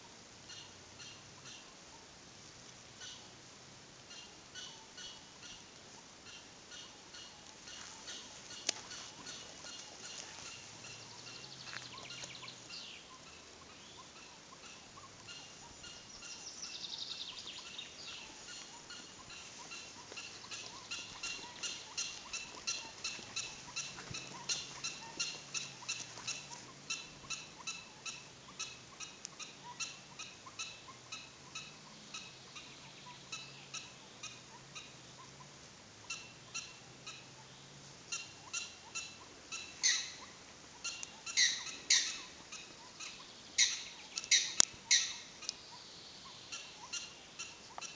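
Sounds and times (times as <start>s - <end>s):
prairie dog barking: 17.5s - 32.2s, 36.1s - 45.9s.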